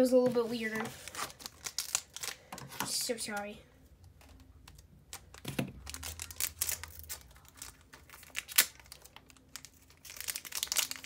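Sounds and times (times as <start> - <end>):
foil wrapper crinkling: 0.7 - 2.6, 4.3 - 11.0.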